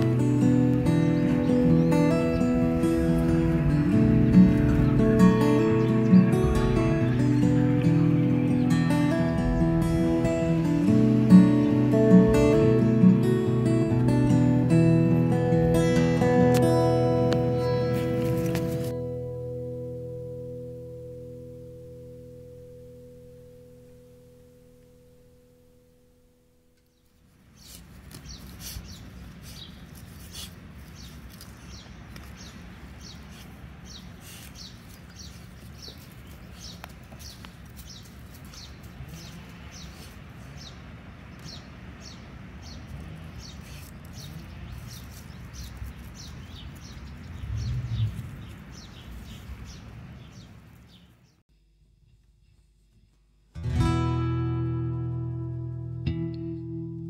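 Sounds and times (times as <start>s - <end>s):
low rustling rumble: 0.2s - 14.8s, 46.6s - 49.8s
small bird chirping: 26.8s - 51.4s.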